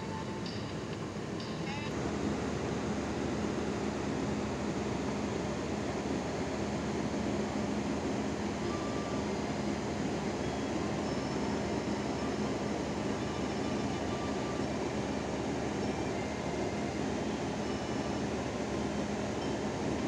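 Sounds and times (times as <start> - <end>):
machinery droning hum: 0.0 - 20.0.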